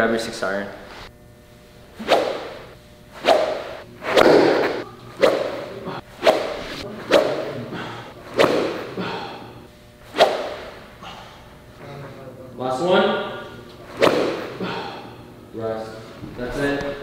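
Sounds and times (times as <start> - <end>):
golf club swooshing through air: 2.0 - 7.5, 8.3 - 9.0, 10.1 - 10.8.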